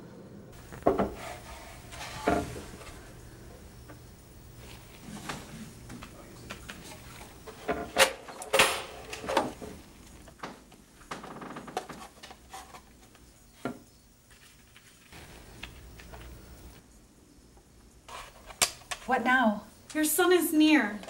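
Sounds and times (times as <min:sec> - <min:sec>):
rustling: 0:14.3 - 0:16.8.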